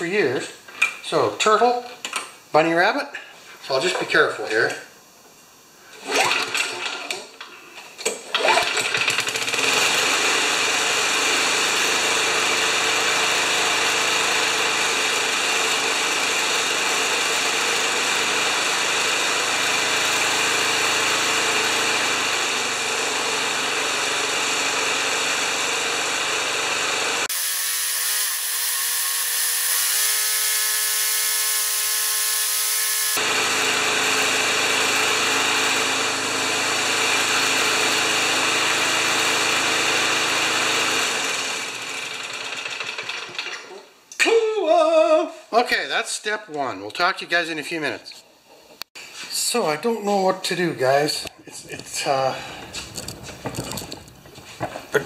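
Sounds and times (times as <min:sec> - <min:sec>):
lawn mower engine running: 0:08.4 - 0:27.3, 0:33.1 - 0:43.6.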